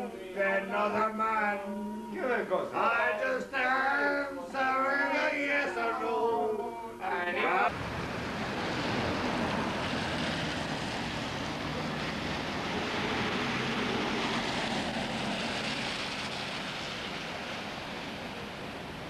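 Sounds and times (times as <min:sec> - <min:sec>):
car engine and road noise: 0:07.7 - 0:19.0.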